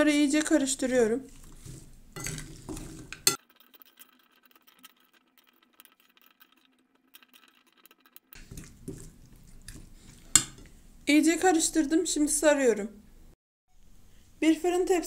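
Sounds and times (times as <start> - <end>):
spoon stirring wet food in bowl: 0.2 - 3.4, 8.4 - 12.3
spoon clinking on glass: 2.2 - 3.4, 10.1 - 10.8.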